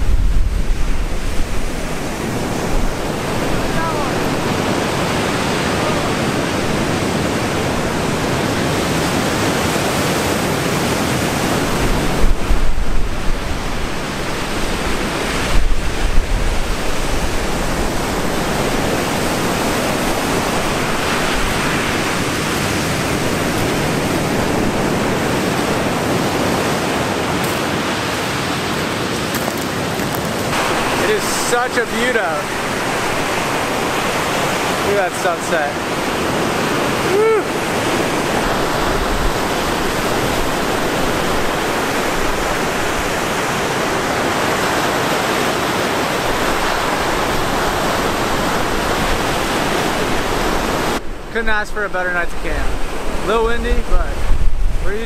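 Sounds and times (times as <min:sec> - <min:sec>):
waves breaking on shore: 0:00.0 - 0:55.0
wind buffeting microphone: 0:00.0 - 0:55.0.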